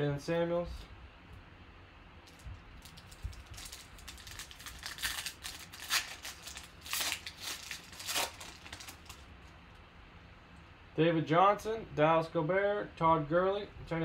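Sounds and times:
foil wrapper crinkling and tearing: 2.3 - 9.4.

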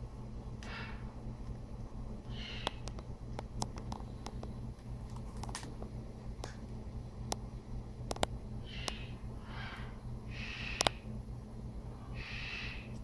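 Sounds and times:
low steady hum: 0.0 - 13.0
parrot cracking a nut: 2.4 - 5.8, 8.1 - 9.0.

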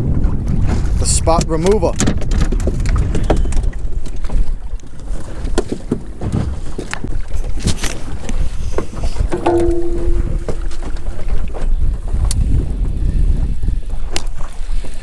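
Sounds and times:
knocks and clatter on metal boat: 0.0 - 14.5
wind buffeting microphone: 0.0 - 15.0
short steady tone: 9.4 - 10.7.

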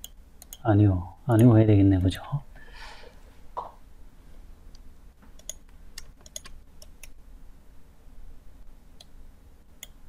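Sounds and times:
computer mouse clicking: 0.0 - 0.6, 4.7 - 7.2
faint low hum: 0.0 - 10.0.

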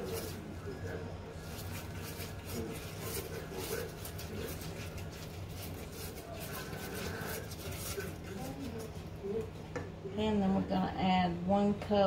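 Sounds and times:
whisk scraping metal saucepan: 0.0 - 9.0.

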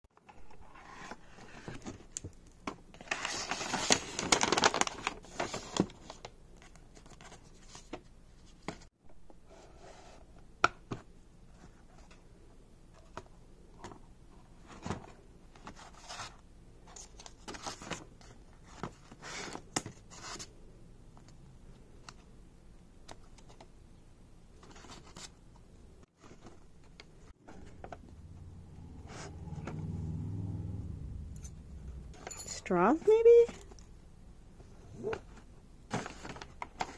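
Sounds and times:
tissue paper rustling and crinkling: 3.0 - 6.3.

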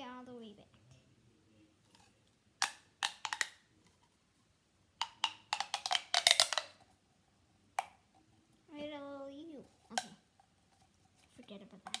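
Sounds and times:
plastic pop tube snapping: 2.6 - 3.6, 5.0 - 6.8, 7.8 - 8.0.

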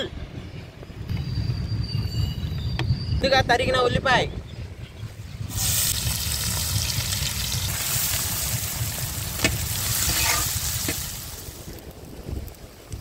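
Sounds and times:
food sizzling in hot oil: 5.5 - 12.6.

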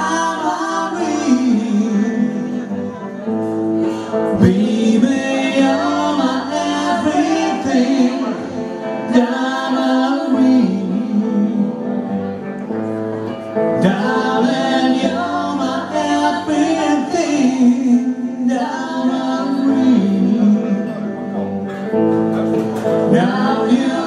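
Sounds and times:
man and woman singing: 0.0 - 12.6, 13.7 - 21.6, 22.8 - 24.0
electric guitar: 0.0 - 24.0
drums: 21.5 - 24.0.

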